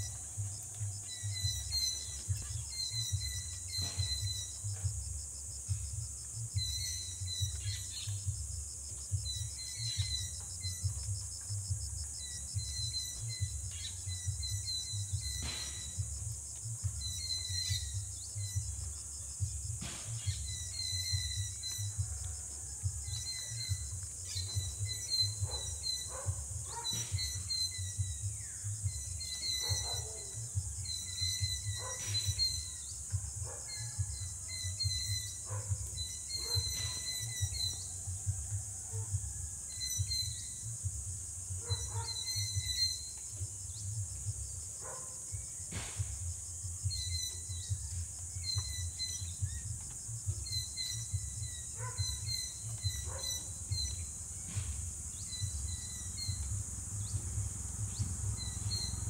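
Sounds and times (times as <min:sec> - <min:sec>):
small birds chirping: 0:00.0 - 0:59.0
steady high hiss: 0:40.0 - 0:59.0.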